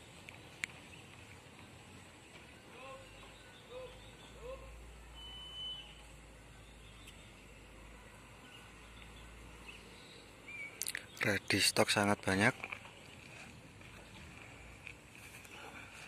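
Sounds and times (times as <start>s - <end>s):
distant bird calls: 0.0s - 16.0s
thin whistle: 4.4s - 6.2s.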